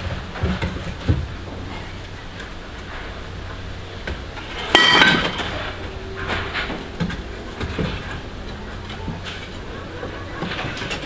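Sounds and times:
kitchenware clinking: 0:04.4 - 0:11.0.

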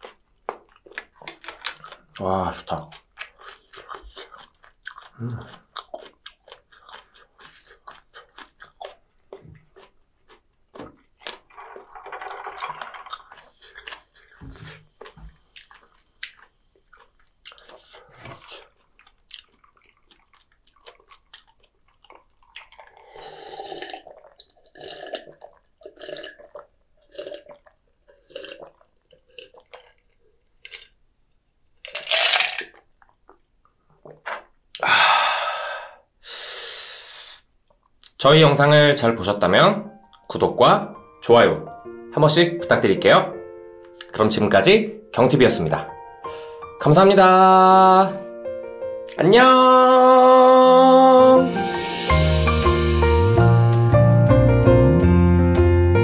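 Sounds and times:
person chewing food: 0:00.0 - 0:31.0, 0:31.8 - 0:34.9
person drinking iced drink: 0:02.9 - 0:31.0, 0:31.8 - 0:37.5.

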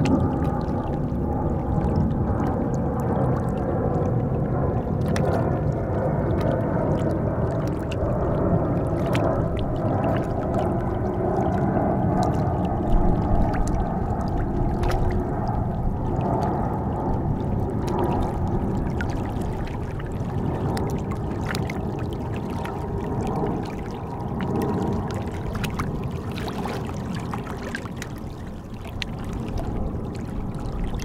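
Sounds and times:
faint clicks and trickles: 0:00.0 - 0:31.0
low steady rumble: 0:00.0 - 0:31.0
small waves lapping on rocks: 0:17.8 - 0:31.0.

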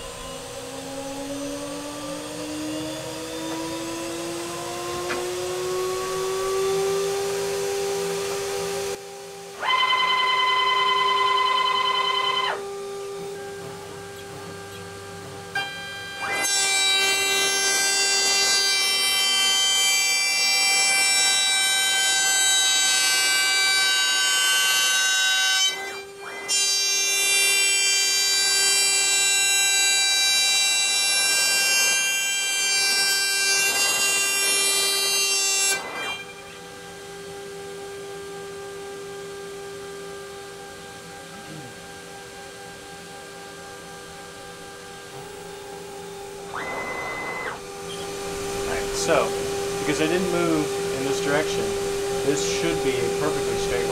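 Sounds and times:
stepper motors whining: 0:00.0 - 0:17.2, 0:43.7 - 0:53.9
router spindle whine: 0:00.0 - 0:53.9.

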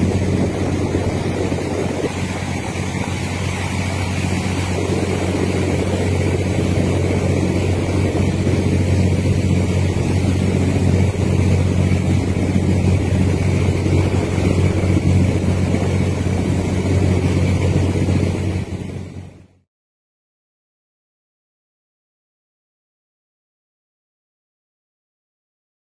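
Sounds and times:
diesel engine droning: 0:00.0 - 0:19.4
wind noise on microphone: 0:00.0 - 0:19.6.

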